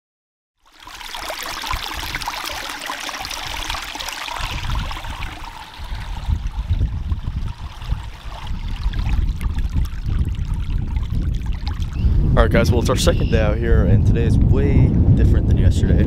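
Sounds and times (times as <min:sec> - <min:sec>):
stream water rushing and splashing: 0:00.6 - 0:12.1
wind buffeting microphone: 0:01.7 - 0:02.6, 0:03.2 - 0:16.0.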